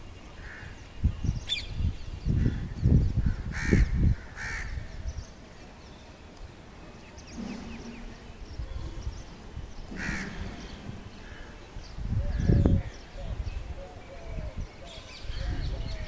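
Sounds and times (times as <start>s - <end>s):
harsh cawing bird calls: 0.4s - 0.8s, 2.3s - 5.0s, 9.9s - 13.2s.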